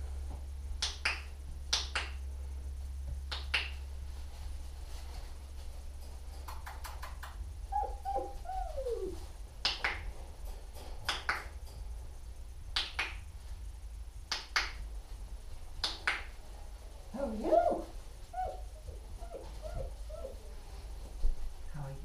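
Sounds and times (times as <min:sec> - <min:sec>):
puppy whimpering: 0:07.8 - 0:09.2, 0:17.2 - 0:20.4.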